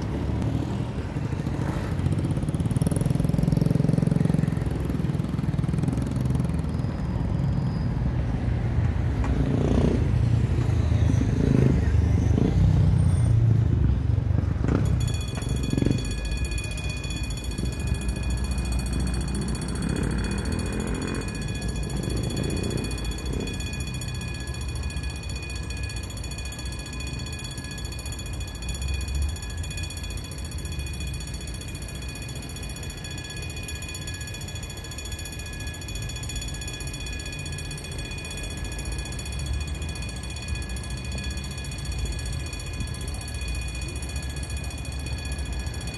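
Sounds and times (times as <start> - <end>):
road traffic rumbling: 0.0 - 45.9
level crossing bells ringing: 14.7 - 45.9.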